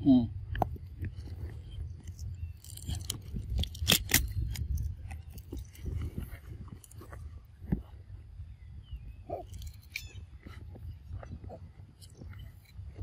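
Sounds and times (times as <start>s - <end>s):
monkey chewing crisp fruit: 0.5s - 7.2s, 9.3s - 12.8s.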